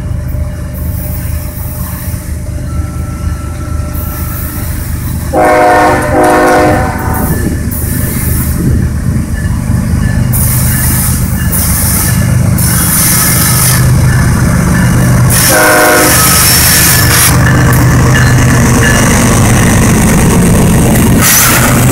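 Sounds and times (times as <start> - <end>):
diesel locomotive engines rumbling: 0.0 - 21.9
train air horn: 5.3 - 7.4, 15.3 - 16.8, 21.2 - 21.8.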